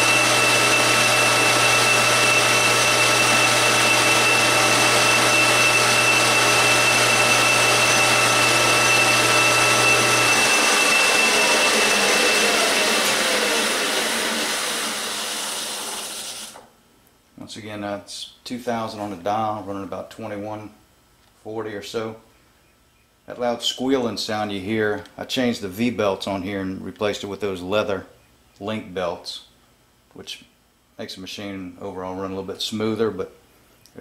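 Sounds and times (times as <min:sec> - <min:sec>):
lathe spindle running: 0:00.0 - 0:16.7.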